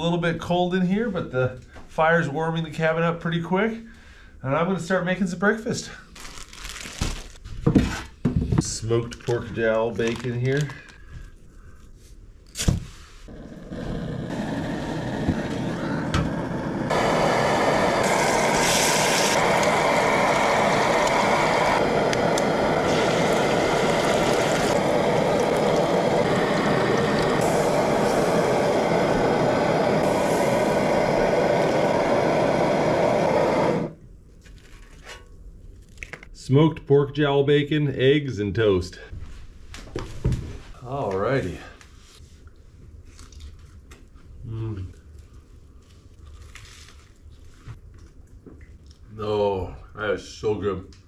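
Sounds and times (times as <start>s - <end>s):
camp stove burner hissing: 13.2s - 34.0s
stove igniter click: 15.2s - 28.0s
food frying on griddle: 16.9s - 28.4s.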